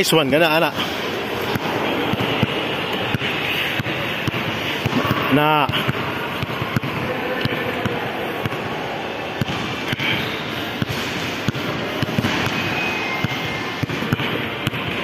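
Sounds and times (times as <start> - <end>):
basketball bouncing on hard floor: 13.2 - 15.0.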